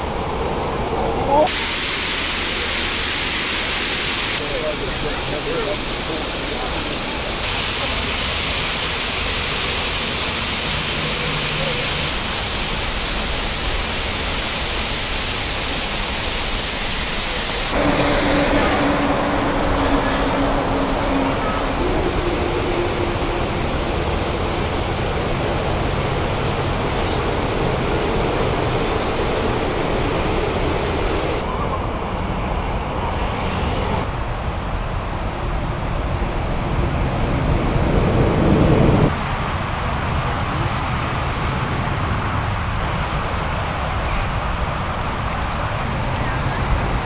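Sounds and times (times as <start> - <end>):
waterfall rushing: 1.1 - 31.7
low hum: 17.7 - 25.4.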